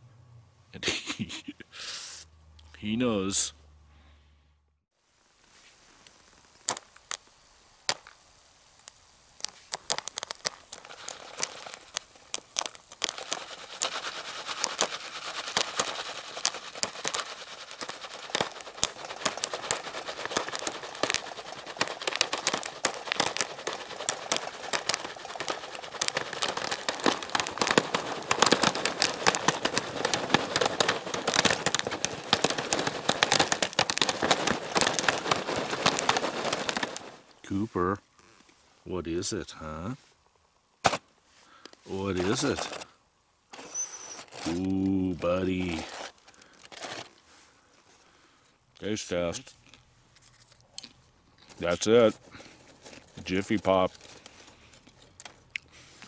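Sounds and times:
pan rattling hiss: 0:05.5 - 0:37.4, 0:41.8 - 0:47.4
popcorn popping in foil pan: 0:06.5 - 0:37.4, 0:41.6 - 0:47.2, 0:51.5 - 0:55.6.

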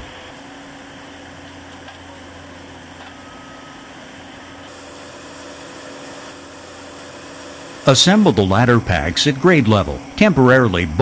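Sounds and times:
machinery humming: 0:00.0 - 0:11.0
faint high whine: 0:02.2 - 0:11.0.

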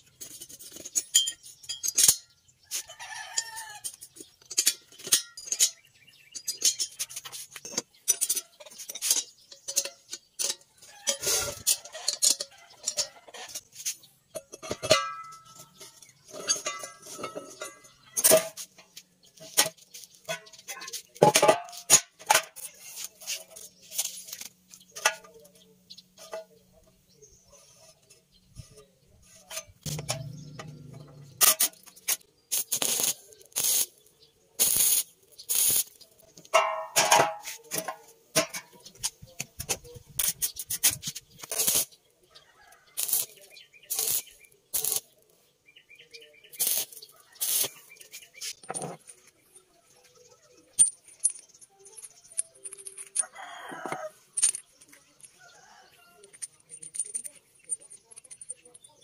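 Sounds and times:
rubbing and scraping on steel: 0:00.1 - 0:42.1, 0:42.8 - 0:45.3, 0:46.0 - 0:59.0
metallic clank with ring: 0:01.0 - 0:02.3, 0:14.4 - 0:18.6
welding arc crackling: 0:31.4 - 0:33.9, 0:34.6 - 0:36.0, 0:41.4 - 0:41.9, 0:43.0 - 0:45.2, 0:46.6 - 0:47.8.

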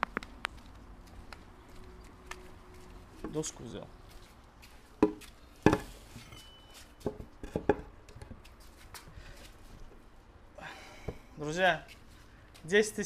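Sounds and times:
wood knocking on hard surface: 0:05.0 - 0:05.9, 0:07.0 - 0:07.9.

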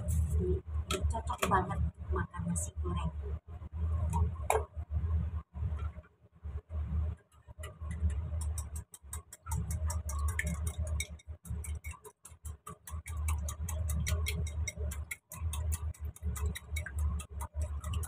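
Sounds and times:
whisk clicking against ceramic bowl: 0:07.6 - 0:18.0.

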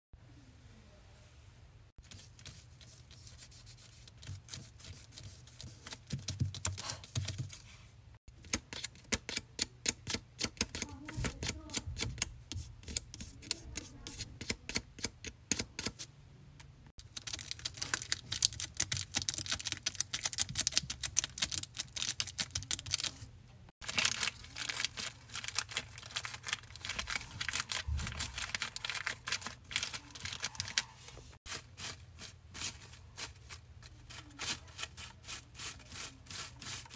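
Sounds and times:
fingers tapping on paper: 0:05.7 - 0:07.6.

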